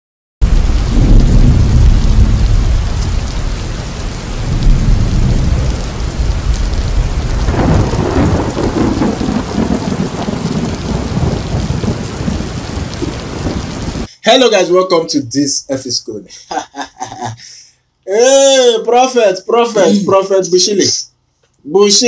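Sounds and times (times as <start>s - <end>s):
heavy rain: 0.4s - 14.1s
rolling thunder: 0.4s - 14.1s.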